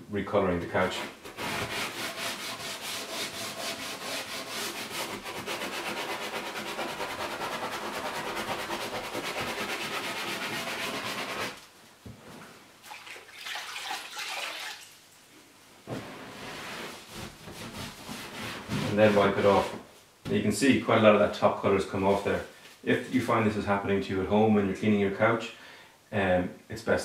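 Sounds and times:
uneven rubbing: 0.8s - 11.6s, 15.9s - 19.9s
brush scrubbing leather: 1.4s - 11.6s.

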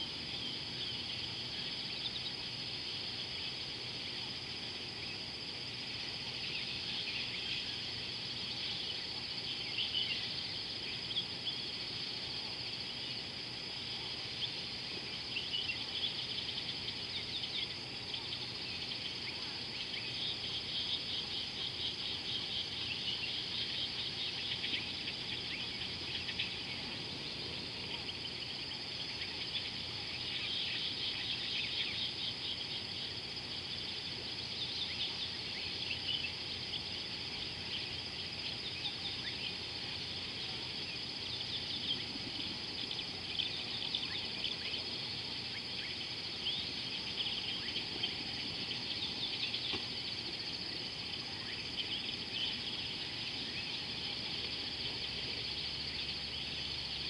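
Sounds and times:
insect trill and chirps: 0.0s - 57.0s.

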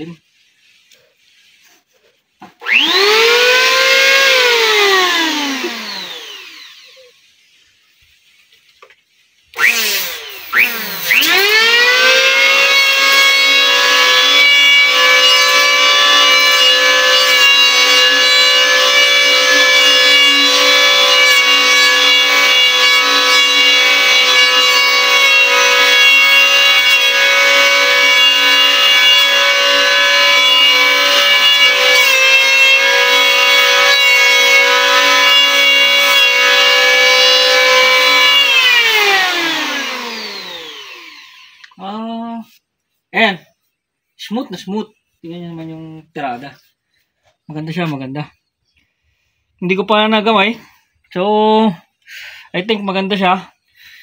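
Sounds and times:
electric hand planer whining: 2.4s - 7.1s, 9.6s - 41.8s.

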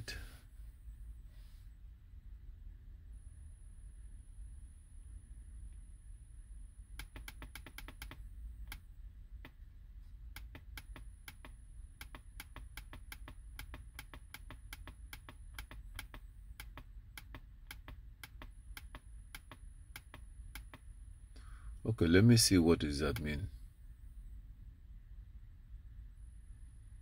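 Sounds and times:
laptop keys clicking: 7.0s - 8.8s, 10.4s - 20.8s.

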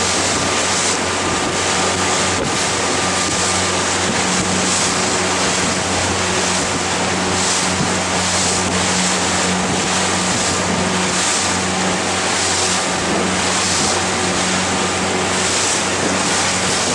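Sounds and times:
boat engine hum: 0.0s - 16.9s
water splashing along hull: 0.0s - 16.9s
wind on microphone: 0.0s - 16.9s.

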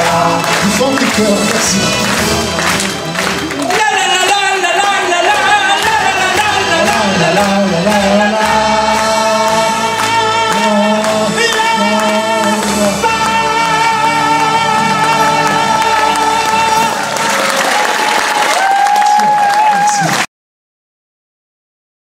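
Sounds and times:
person singing into microphone: 0.0s - 2.2s, 3.5s - 18.1s
instrumental backing with bass: 0.0s - 17.6s.

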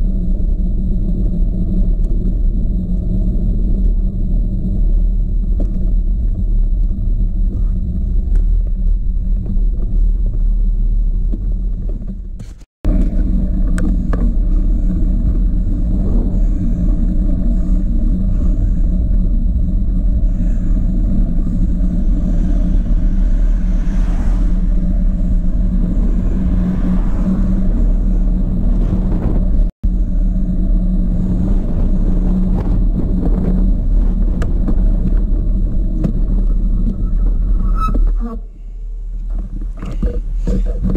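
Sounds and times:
wind rumble on microphone: 0.0s - 40.9s
car passing: 21.4s - 29.7s.

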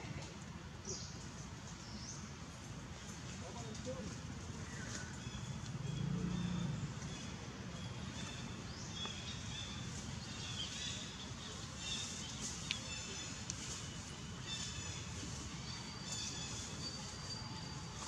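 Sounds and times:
birds chirping: 4.6s - 18.0s.

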